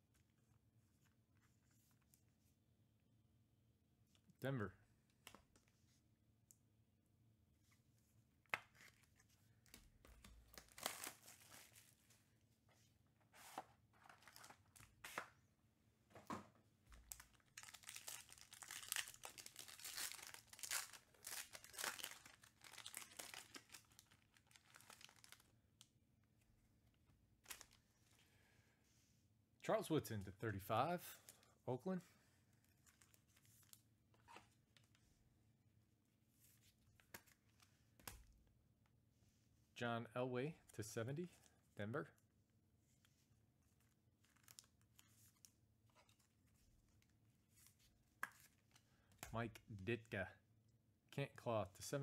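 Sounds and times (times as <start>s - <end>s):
cards and plastic sleeves rustling: 8.4s - 15.4s, 16.9s - 25.6s, 27.4s - 28.2s, 32.4s - 35.1s, 36.3s - 38.3s, 42.8s - 49.8s
foil pack tearing and crinkling: 17.6s - 25.4s.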